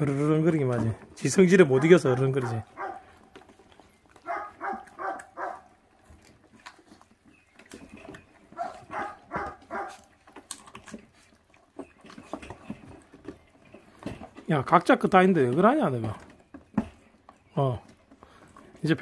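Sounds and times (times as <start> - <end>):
paws on crate: 0.0 - 19.0
puppies growling: 1.4 - 14.4
chewing clicks: 1.8 - 13.8.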